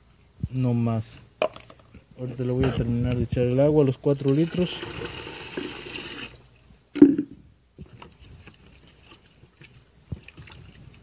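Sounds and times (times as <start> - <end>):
water pouring into plastic container: 4.3 - 6.4
wet squishing of gel: 7.8 - 11.0.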